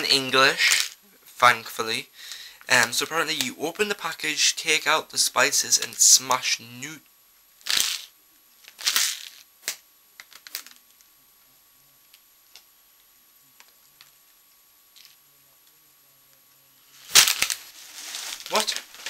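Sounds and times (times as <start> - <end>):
plastic packet crinkling: 17.0 - 19.0
soft rustles and clicks: 17.4 - 19.0.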